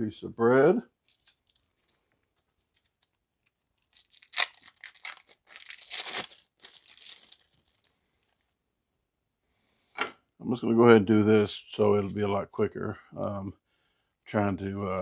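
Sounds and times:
food wrapper crinkling and tearing: 0:01.0 - 0:08.6.

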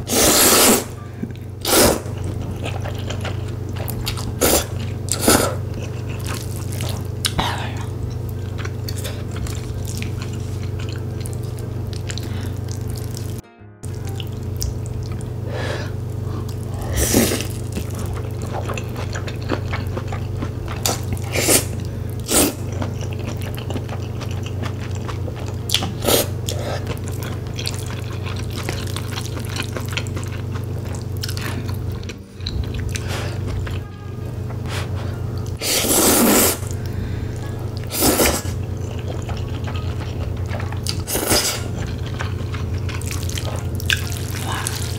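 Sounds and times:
slurping noodles: 0:00.0 - 0:00.9, 0:01.6 - 0:02.2, 0:04.4 - 0:06.9, 0:20.8 - 0:22.8, 0:26.0 - 0:26.9, 0:35.6 - 0:36.8, 0:37.8 - 0:39.1, 0:40.9 - 0:42.1
steady low hum: 0:00.0 - 0:44.9
chewing: 0:01.3 - 0:13.4, 0:16.1 - 0:33.8, 0:34.5 - 0:44.9.

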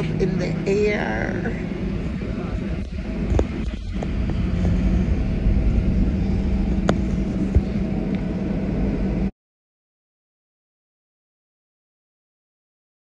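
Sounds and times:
faint steady hum: 0:00.0 - 0:09.3
jet engines rumbling in cabin: 0:00.0 - 0:09.3.

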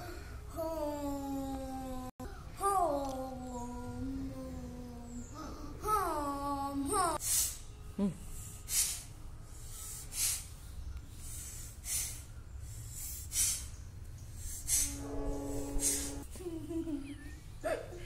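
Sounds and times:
child breathing sharply: 0:08.4 - 0:10.5, 0:11.2 - 0:13.7, 0:14.4 - 0:15.0
child humming: 0:14.7 - 0:16.9.

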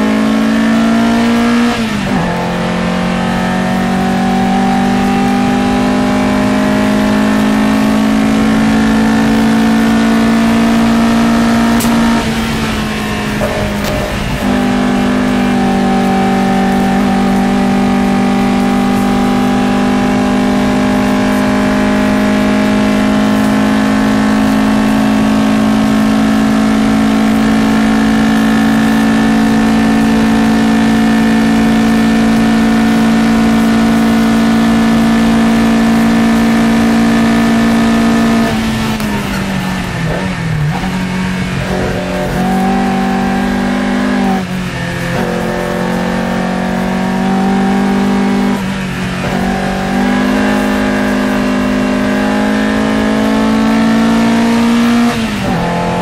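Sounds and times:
racing car engine at full throttle: 0:00.0 - 0:56.0.

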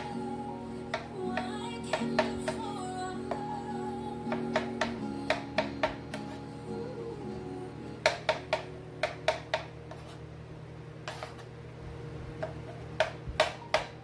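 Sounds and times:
knife tapping on plastic board: 0:08.0 - 0:09.7, 0:12.4 - 0:14.0.

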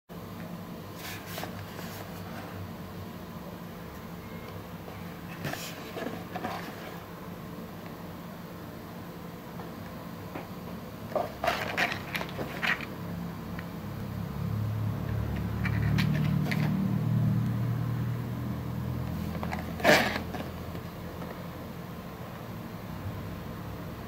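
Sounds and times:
fingers rubbing cardboard box: 0:19.3 - 0:20.5.

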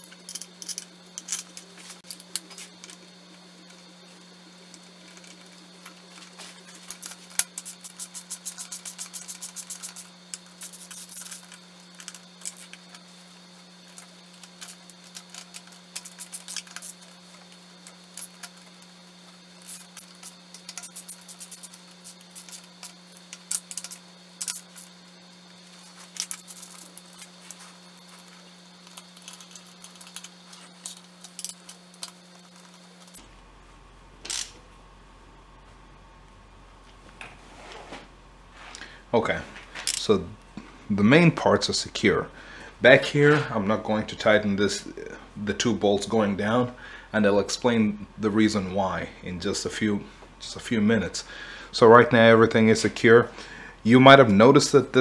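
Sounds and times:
steady low hum: 0:00.0 - 0:55.0
hand ratchet clicking: 0:06.9 - 0:13.0, 0:14.4 - 0:17.1, 0:19.6 - 0:24.9.

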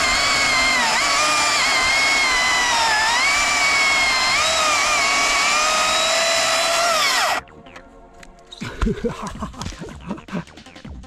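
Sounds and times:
electric chainsaw cutting wood: 0:00.0 - 0:07.4.

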